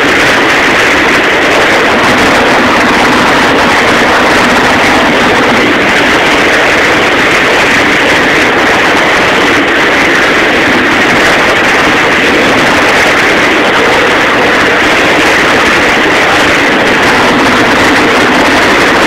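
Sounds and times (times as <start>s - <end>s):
boat engine running: 0.0s - 19.0s
churning water rushing: 0.0s - 19.0s.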